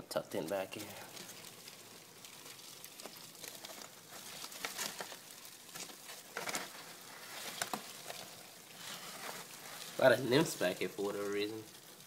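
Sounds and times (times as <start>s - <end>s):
cardboard rustling and scraping: 3.0s - 10.6s.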